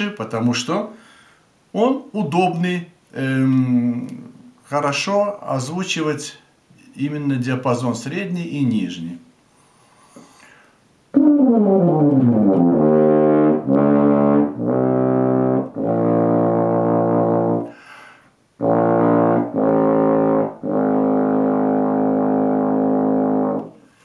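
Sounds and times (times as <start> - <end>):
french horn low notes: 11.2 - 17.8, 18.6 - 23.8.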